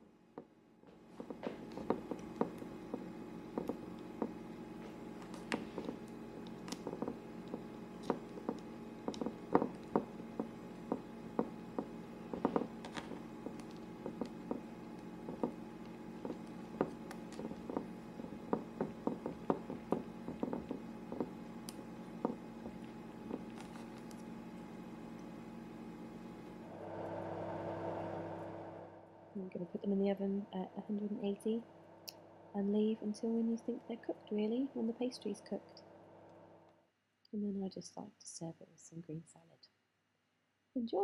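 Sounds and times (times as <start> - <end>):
steady low hum: 0.0 - 36.8
hands pressing pastry: 0.4 - 26.6
soft taps and squishes: 0.9 - 25.4.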